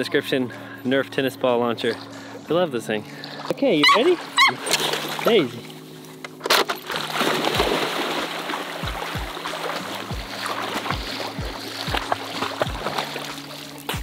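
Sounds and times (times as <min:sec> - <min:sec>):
dogs splashing in water: 0:03.2 - 0:05.8, 0:06.5 - 0:14.0
background music with bass beat: 0:08.8 - 0:14.0.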